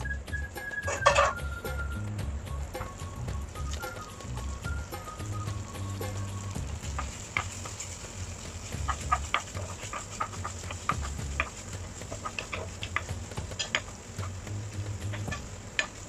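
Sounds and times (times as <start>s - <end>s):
faint sizzle: 0.0s - 16.0s
spatula scraping a frying pan: 6.1s - 16.0s.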